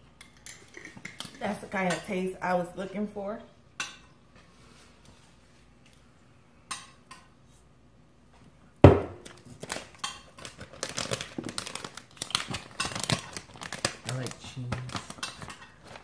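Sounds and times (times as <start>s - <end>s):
plastic bag rustling: 9.2s - 16.0s.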